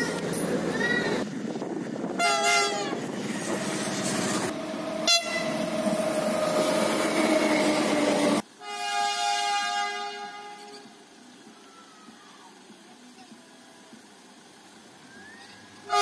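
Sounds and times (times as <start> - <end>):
passing train running: 0.0 - 11.5
train horn blasts: 2.2 - 3.0, 5.0 - 5.6, 8.6 - 10.9.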